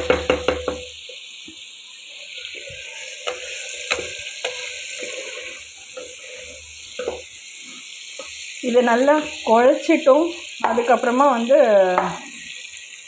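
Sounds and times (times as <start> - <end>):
food sizzling in oil: 0.0 - 13.0
ladle scraping metal pan: 2.5 - 7.3.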